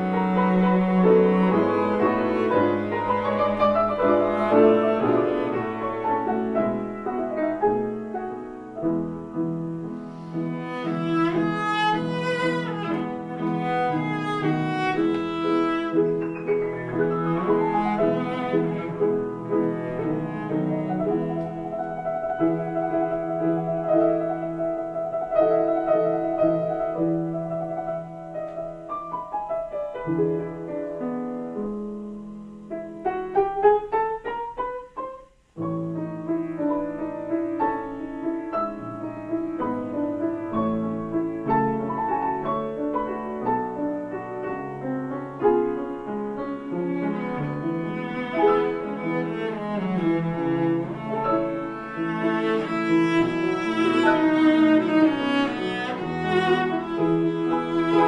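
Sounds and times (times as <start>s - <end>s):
cello bowing long notes: 0.0s - 7.0s, 10.0s - 24.6s, 46.5s - 58.0s
piano playing: 0.0s - 58.0s.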